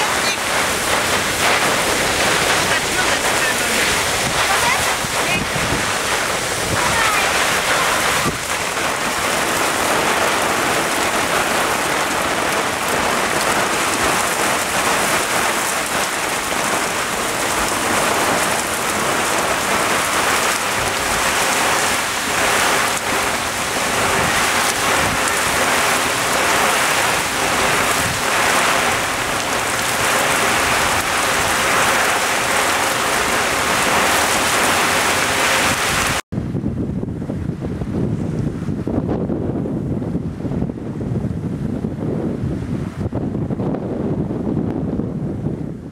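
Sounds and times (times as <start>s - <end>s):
heavy rain hissing: 0.0s - 36.2s.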